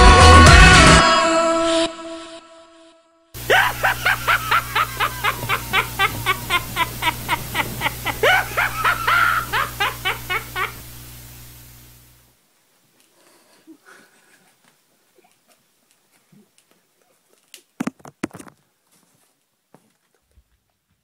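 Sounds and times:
high-pitched laughter: 3.4s - 10.8s
low hum: 3.4s - 12.3s.

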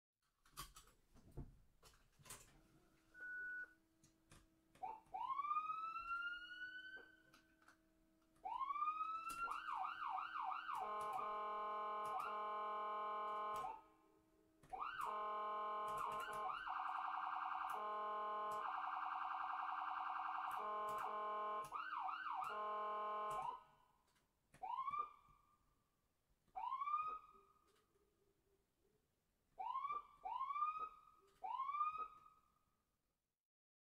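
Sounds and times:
ambulance siren: 4.8s - 7.4s, 8.4s - 13.9s, 14.7s - 23.8s, 24.6s - 25.4s, 26.6s - 27.6s, 29.6s - 32.4s.

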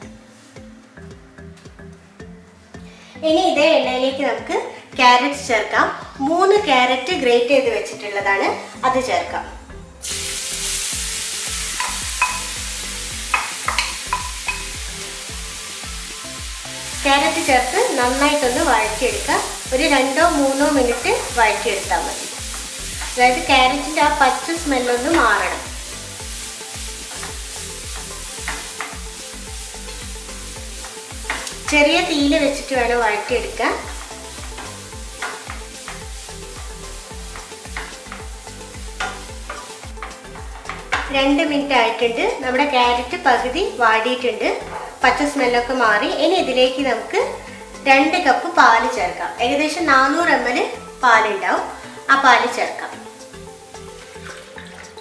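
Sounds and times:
soft background music with beat: 0.0s - 55.0s
carrot sizzling in frying pan: 10.0s - 55.0s
spatula scraping a pan: 44.6s - 45.2s.

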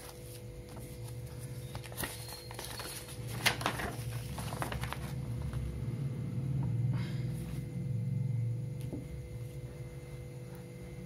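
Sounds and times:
paper crackles: 0.0s - 5.7s
paper rustling and crinkling: 0.0s - 5.7s
steady low hum: 0.0s - 11.0s.

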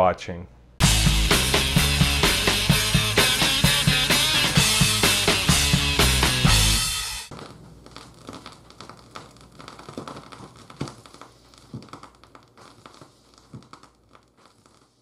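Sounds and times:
music from vinyl record: 0.8s - 7.4s.

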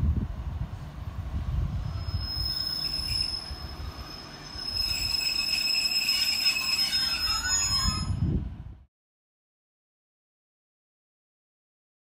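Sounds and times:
train rumble: 0.0s - 8.9s
train wheels squealing: 1.8s - 8.4s.

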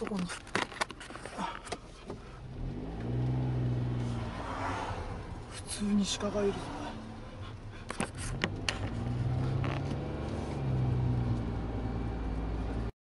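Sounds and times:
clicks and creaks in car: 0.0s - 3.3s, 7.6s - 11.6s
car engine hum: 0.0s - 12.9s.

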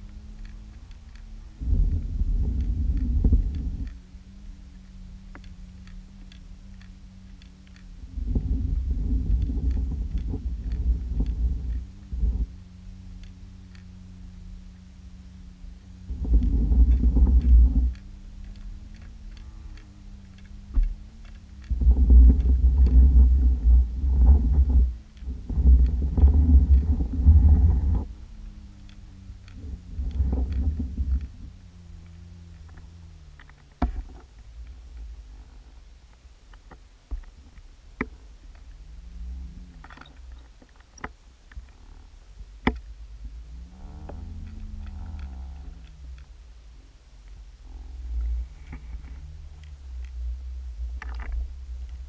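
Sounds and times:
faint ticks: 0.0s - 52.0s
steady low hum: 0.0s - 52.0s
underwater rumble of moving water: 0.0s - 52.0s
underwater rumbling surges: 21.6s - 28.1s
sharp clicks or knocks: 42.6s - 42.9s.

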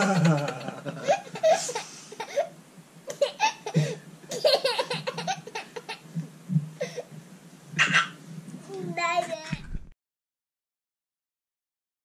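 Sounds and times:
baby laughing: 0.0s - 6.1s.

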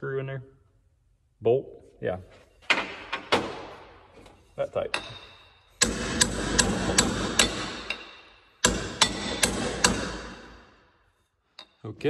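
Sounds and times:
hammer striking metal tube: 4.9s - 10.9s.

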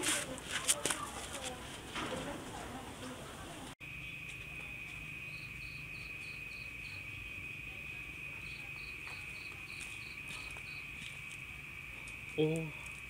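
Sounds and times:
cricket trill: 3.8s - 13.0s.

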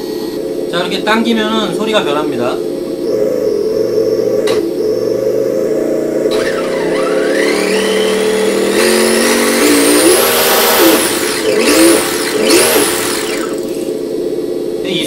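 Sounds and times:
simulated car engine revving: 0.0s - 14.8s.

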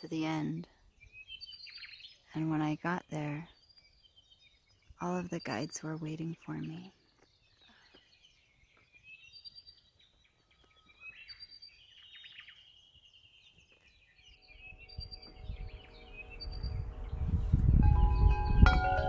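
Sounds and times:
birds chirping and whistling: 0.0s - 19.0s
low rumble: 14.4s - 19.0s
steady chime tones: 14.4s - 19.0s.

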